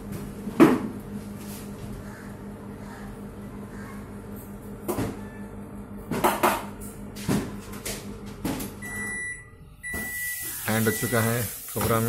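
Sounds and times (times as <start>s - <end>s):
microwave oven humming: 0.0s - 12.0s
microwave beeps: 8.7s - 12.0s.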